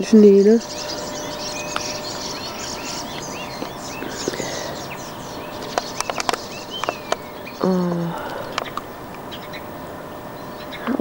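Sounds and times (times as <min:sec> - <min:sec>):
small birds chirping: 0:00.0 - 0:11.0
steady outdoor hiss: 0:00.0 - 0:11.0
sharp clicks: 0:05.5 - 0:07.6, 0:08.2 - 0:09.2.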